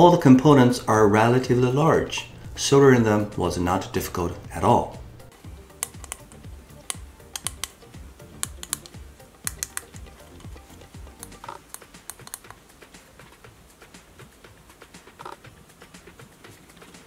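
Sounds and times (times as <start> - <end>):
background music with soft beat: 0.0 - 17.0
sharp crisp clicks: 5.7 - 12.6.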